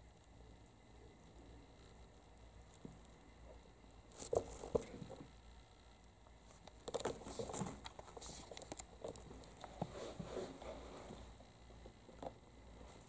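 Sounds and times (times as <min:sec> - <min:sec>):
kittens' paws scuffling: 0:06.4 - 0:11.4.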